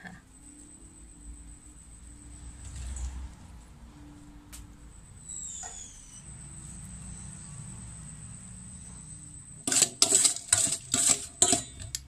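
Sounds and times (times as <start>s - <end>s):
metal spoon scraping a steel bowl: 9.6s - 12.0s.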